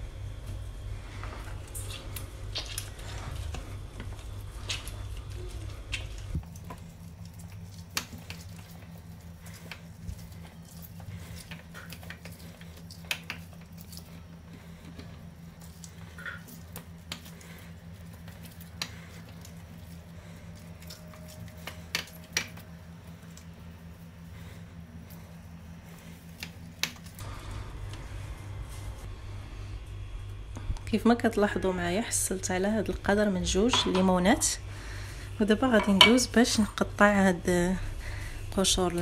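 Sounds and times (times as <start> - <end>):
steady low hum: 0.0 - 39.0
wet squishing of lemon on reamer: 0.5 - 27.2.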